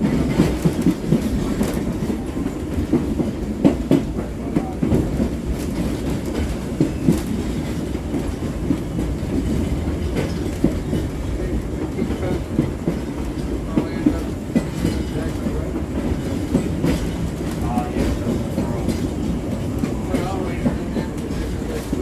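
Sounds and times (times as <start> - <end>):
trolley wheels rumbling: 0.0 - 22.0
wheels clacking over rail joints: 0.0 - 22.0.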